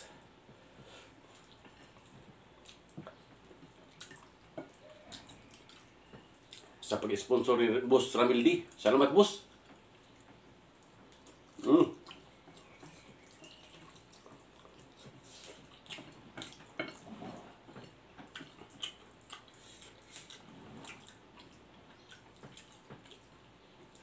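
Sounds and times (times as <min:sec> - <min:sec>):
wet chewing and slurping noodles: 0:01.1 - 0:06.8, 0:09.9 - 0:24.0
mouth smacks and clicks: 0:18.2 - 0:23.3.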